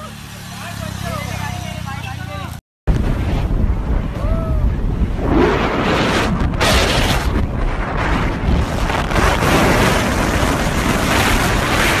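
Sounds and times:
wind buffeting microphone: 2.9 - 12.0.

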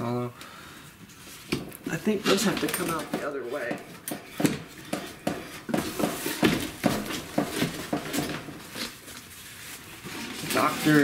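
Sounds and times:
record sleeves scraping metal wires: 1.1 - 9.2, 9.8 - 11.0.

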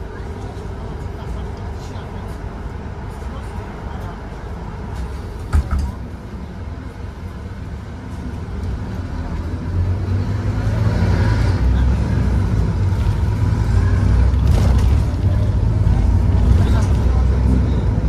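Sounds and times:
bus diesel engine accelerating: 6.2 - 18.0.

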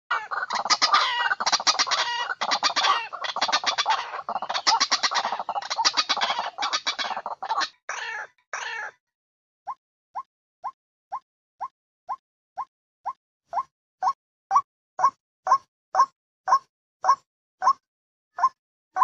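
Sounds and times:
bird croaking call: 0.1 - 9.0.

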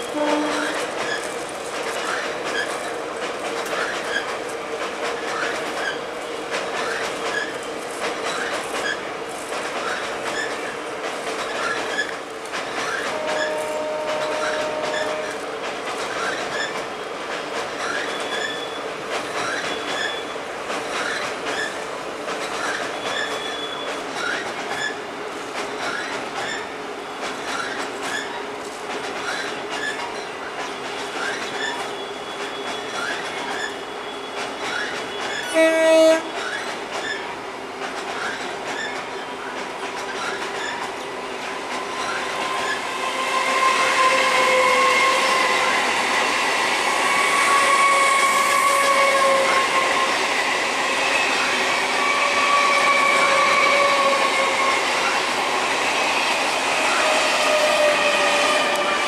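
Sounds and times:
train horn blast: 0.0 - 0.8, 13.1 - 15.4, 35.5 - 36.4, 43.1 - 45.6, 47.2 - 50.1
train passing with wheel squeal: 0.0 - 59.0
freight train wagons clicking over rail joints: 0.1 - 42.8.

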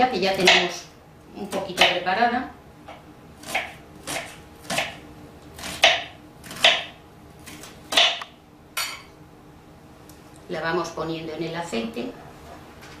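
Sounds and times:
knife chopping onion on board: 0.3 - 0.7, 1.5 - 2.0, 2.9 - 5.0, 5.6 - 8.3.

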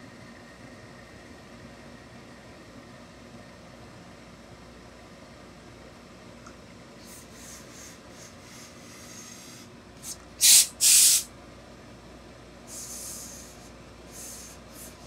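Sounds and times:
steam iron hissing blasts: 7.0 - 11.3, 12.7 - 15.0.

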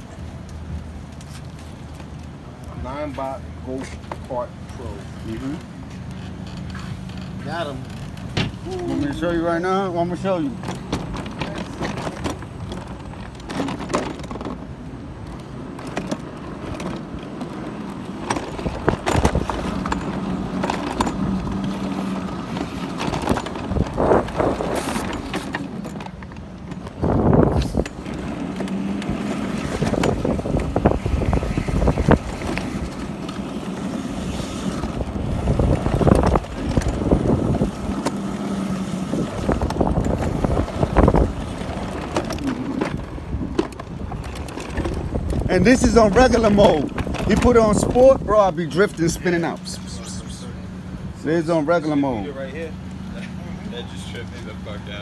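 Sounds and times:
wheels rolling on pavement: 0.0 - 55.0
knocks and rattles from bumps: 3.1 - 49.7
electric go-kart motor hum: 6.4 - 55.0.

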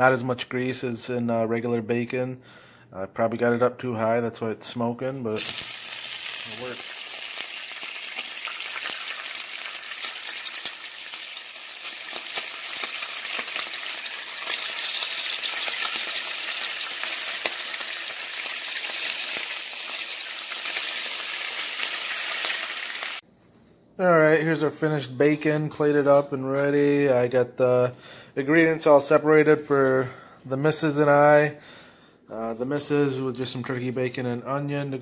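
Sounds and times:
bacon sizzling in a frying pan: 5.4 - 23.2.

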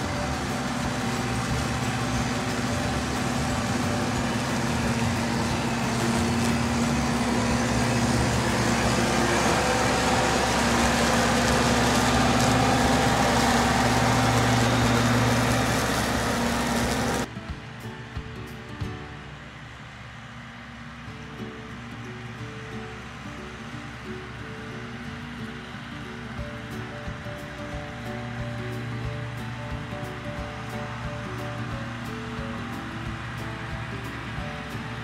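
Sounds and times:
leaf collector rushing noise: 0.0 - 35.0
tractor engine hum: 0.0 - 35.0.

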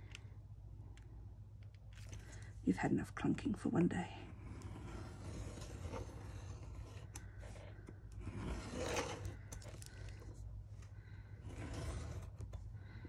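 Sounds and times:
craft knife cutting paper: 4.4 - 10.3, 11.4 - 12.6.

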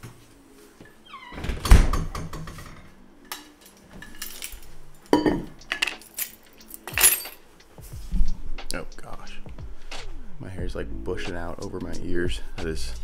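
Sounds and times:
door hinge squeaking: 1.1 - 1.8.

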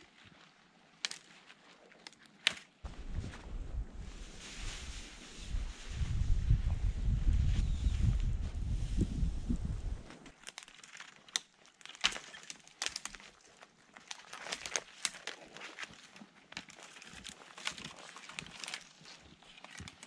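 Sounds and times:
twigs snapping: 1.0 - 3.0, 10.0 - 20.0.

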